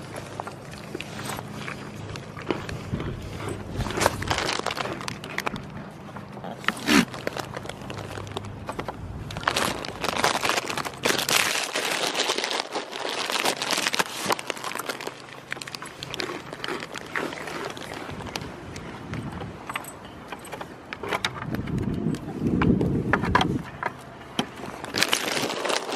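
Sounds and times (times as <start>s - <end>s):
goats chewing crunchily: 0.0s - 25.9s.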